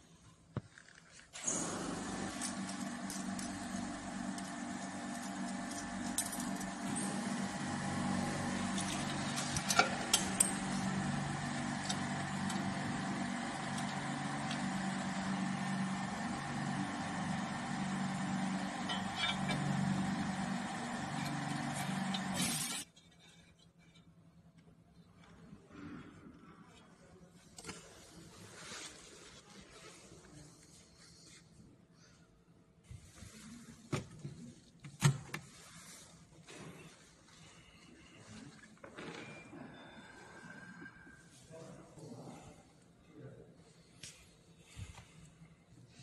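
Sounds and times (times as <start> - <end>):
machine hum: 1.4 - 22.8.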